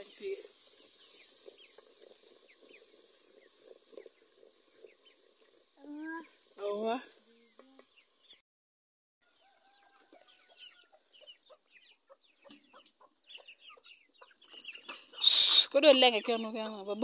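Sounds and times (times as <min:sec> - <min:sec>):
hens clucking: 0:09.8 - 0:17.0.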